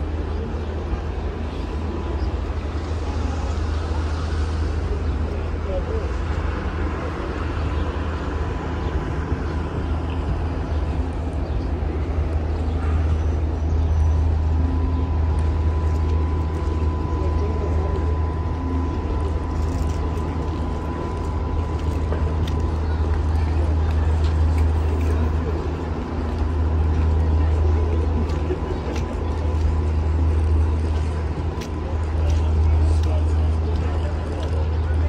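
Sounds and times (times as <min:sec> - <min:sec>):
distant traffic rumble: 0:00.0 - 0:35.0
faint steady whine: 0:00.0 - 0:35.0.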